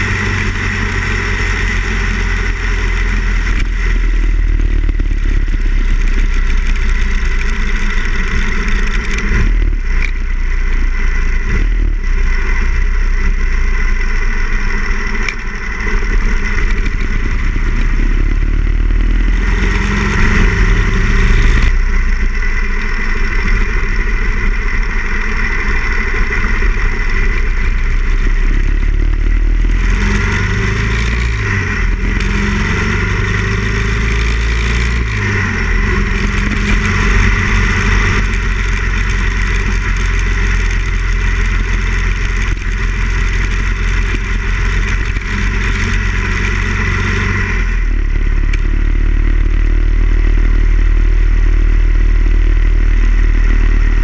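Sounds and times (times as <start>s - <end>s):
motorcycle engine running: 0.0s - 54.0s
road rush: 0.0s - 54.0s
wind: 0.0s - 54.0s.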